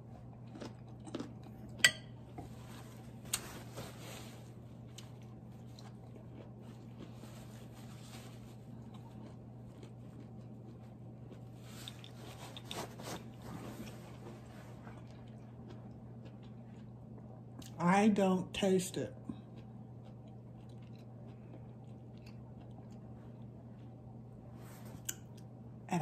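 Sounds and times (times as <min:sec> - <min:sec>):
soft chewing: 0:00.0 - 0:17.8, 0:19.1 - 0:25.6
steady low hum: 0:00.0 - 0:26.0
fork clinking on plate: 0:01.8 - 0:02.2.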